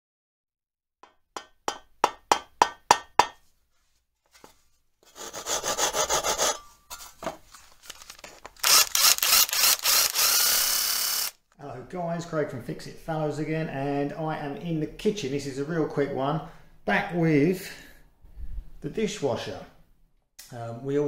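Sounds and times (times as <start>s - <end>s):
harsh rasping: 5.0s - 6.6s
quick tool strokes: 5.1s - 7.1s
loud steady tool noise: 8.6s - 11.4s.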